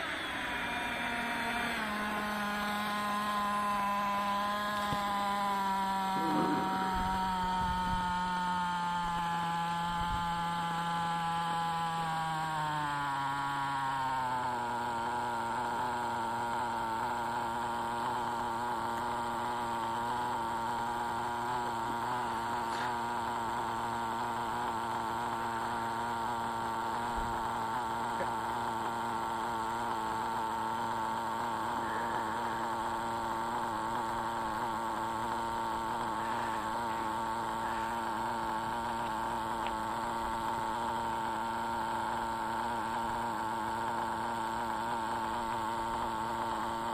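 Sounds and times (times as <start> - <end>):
nitro engine idling: 0.0 - 46.9.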